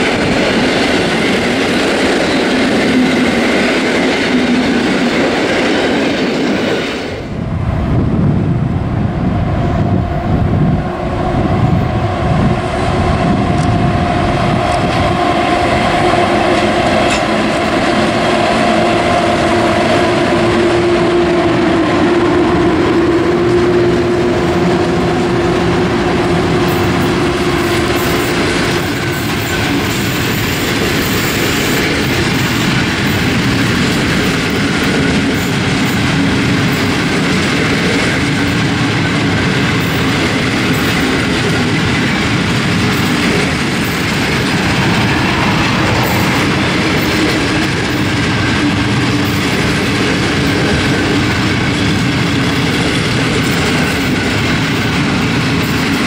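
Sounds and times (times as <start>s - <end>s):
train wheels clattering over rail joints: 13.5s - 20.2s, 22.5s - 56.0s.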